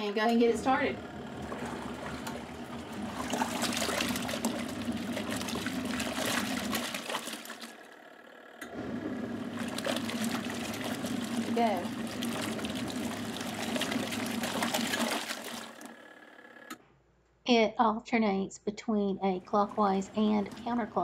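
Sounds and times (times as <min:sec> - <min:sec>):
washing machine motor hum: 0:00.0 - 0:16.8, 0:19.0 - 0:21.0
water sloshing and splashing: 0:01.2 - 0:07.9, 0:09.4 - 0:15.9.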